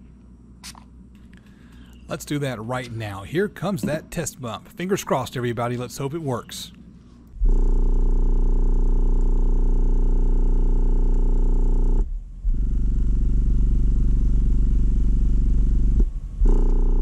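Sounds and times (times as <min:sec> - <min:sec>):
buzzing rattle: 0:07.4 - 0:17.0
loud low bass note: 0:07.4 - 0:17.0.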